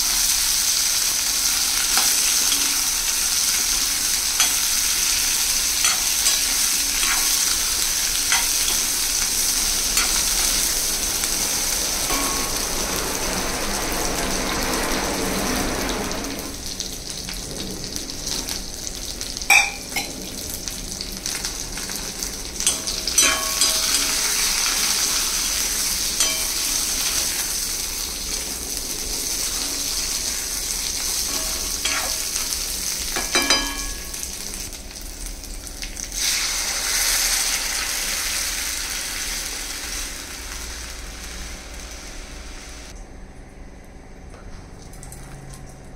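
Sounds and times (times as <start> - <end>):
vegetables sizzling in oil: 0.0 - 43.0
ladle stirring and scraping: 1.5 - 10.8, 30.9 - 34.2
ladle clinking against pan: 8.3 - 8.9, 19.5 - 20.1, 22.6 - 24.4, 26.2 - 26.8, 33.2 - 34.2.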